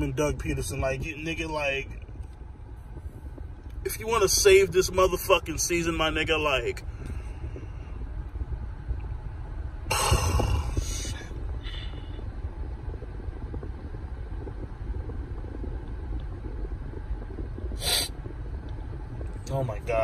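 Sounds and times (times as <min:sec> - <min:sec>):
low rumble in car cabin: 0:00.0 - 0:20.0
noisy sniffle: 0:17.8 - 0:18.1.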